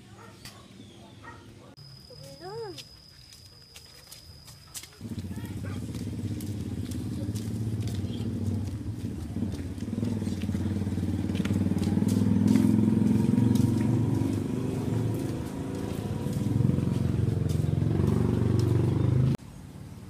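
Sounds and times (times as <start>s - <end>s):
vehicle engine running: 4.8s - 20.0s.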